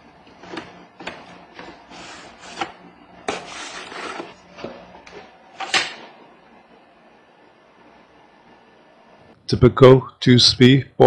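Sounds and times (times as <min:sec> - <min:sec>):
cardboard box rustling and scraping: 0:03.3 - 0:04.4.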